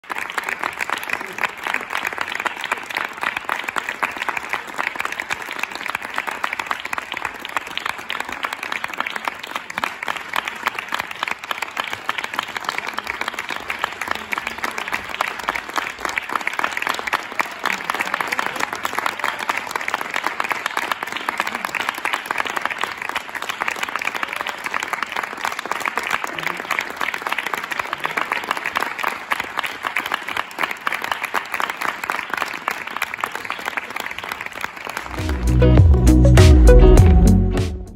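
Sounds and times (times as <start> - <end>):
audience applauding: 0.0 - 37.8.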